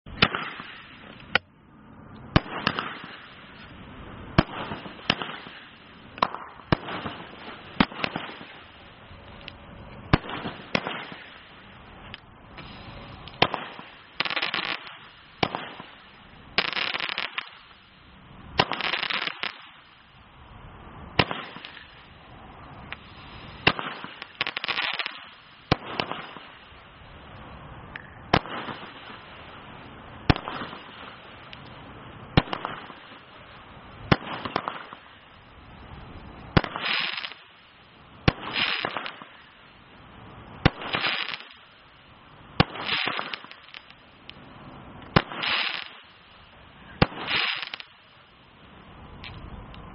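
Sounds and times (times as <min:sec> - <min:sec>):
firework bangs: 0:00.1 - 0:01.4, 0:02.3 - 0:17.8, 0:18.4 - 0:20.0, 0:21.1 - 0:26.8, 0:28.2 - 0:39.6, 0:40.3 - 0:41.8, 0:42.5 - 0:48.2
crackling hiss of firework bursts: 0:00.1 - 0:49.9.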